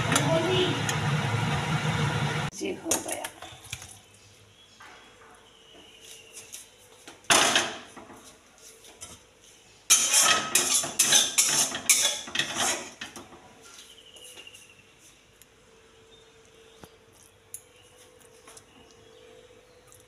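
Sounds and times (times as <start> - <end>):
steel cookware clattering: 9.9 - 13.2
metal knocks and scrapes: 9.9 - 13.5.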